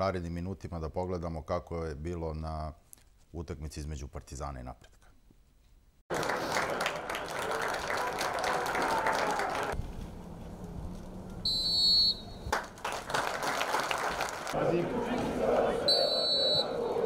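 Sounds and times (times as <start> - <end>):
stadium crowd noise: 6.1 - 9.8, 11.5 - 17.0
referee's whistle blast: 11.5 - 12.5, 15.9 - 16.8.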